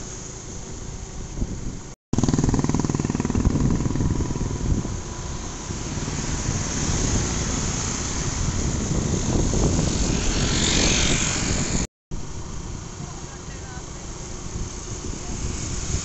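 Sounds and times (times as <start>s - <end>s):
road rush: 0.0s - 16.0s
motorcycle engine running: 1.2s - 11.9s
wind rush: 1.2s - 13.1s, 14.3s - 16.0s
motorcycles passing close by: 2.2s - 11.9s.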